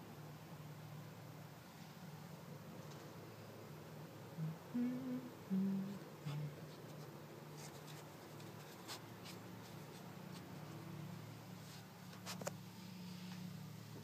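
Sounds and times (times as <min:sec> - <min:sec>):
steady low hum: 0:00.0 - 0:14.0
low hummed vocal notes: 0:04.1 - 0:08.7.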